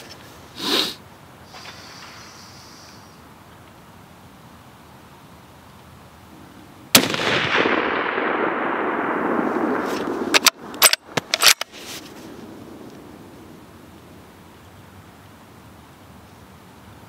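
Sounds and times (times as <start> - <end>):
rifle shot with long echo: 6.9 - 11.6, 12.2 - 14.2
rifle bolt clicks: 10.0 - 11.7.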